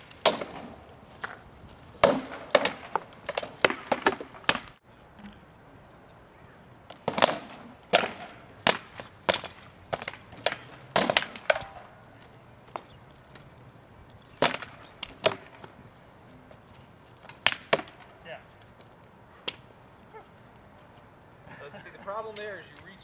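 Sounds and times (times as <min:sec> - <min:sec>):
swords striking shields: 0:07.1 - 0:11.8.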